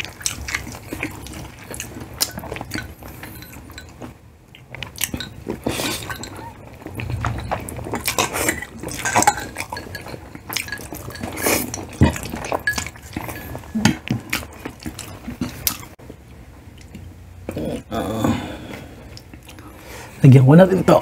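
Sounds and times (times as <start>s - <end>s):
wet chewing: 0.0s - 16.0s
cutlery clinking on plates: 5.0s - 14.6s.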